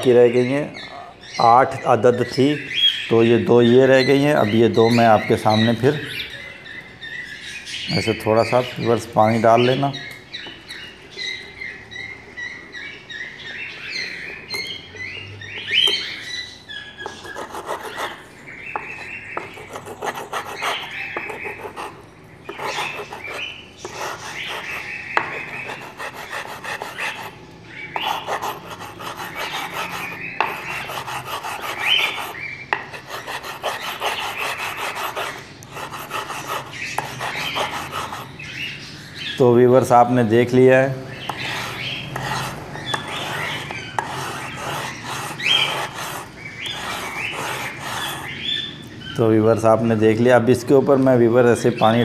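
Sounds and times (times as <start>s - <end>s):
stone scraping wet bar: 41.3s - 48.3s.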